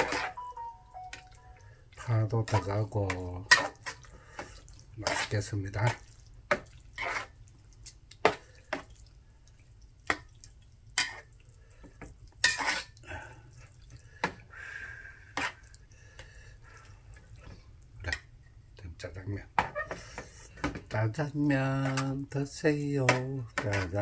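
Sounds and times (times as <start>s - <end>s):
noodles being stirred: 1.9s - 18.3s, 19.7s - 24.0s.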